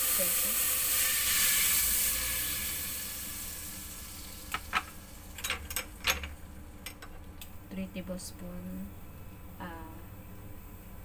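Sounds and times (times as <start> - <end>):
hot oil sizzling: 0.0 - 5.8.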